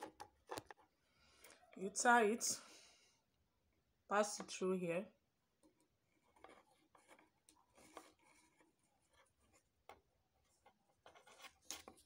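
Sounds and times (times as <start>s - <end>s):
needle and thread scratching mesh: 5.6s - 12.0s.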